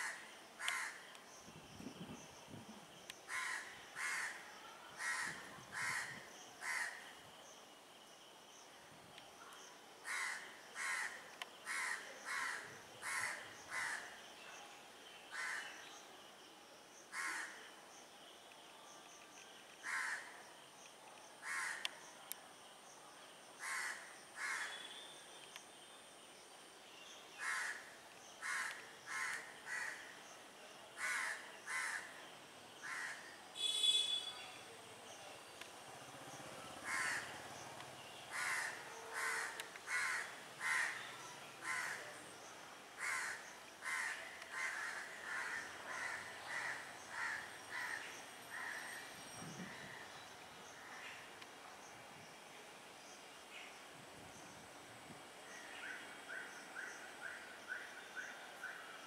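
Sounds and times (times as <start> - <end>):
crows cawing: 0.0 - 1.0, 3.3 - 4.4, 5.0 - 7.0, 10.1 - 14.0, 17.1 - 17.6, 19.8 - 20.3, 21.4 - 21.9, 23.6 - 24.8, 27.4 - 27.8, 28.4 - 30.0, 31.0 - 32.1, 32.8 - 33.2, 36.9 - 37.3, 38.3 - 41.0, 43.0 - 49.0.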